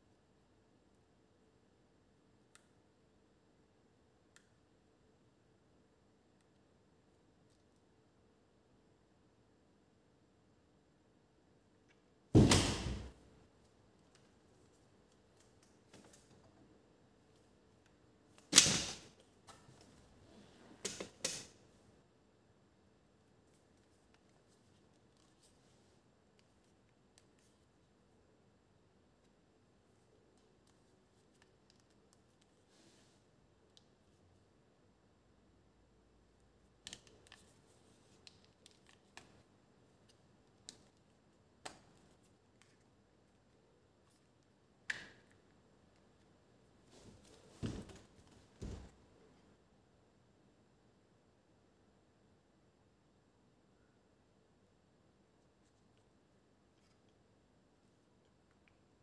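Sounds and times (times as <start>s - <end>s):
light clicks and taps of plastic parts: 30.3s - 32.6s, 36.7s - 46.3s.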